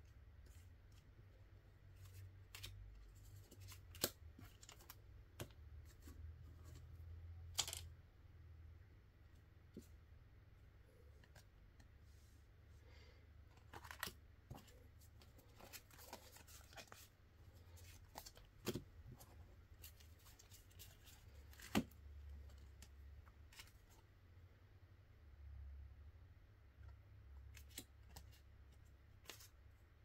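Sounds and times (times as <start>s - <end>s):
cards and packaging rustling: 1.8s - 7.9s, 13.5s - 24.1s, 27.5s - 29.8s.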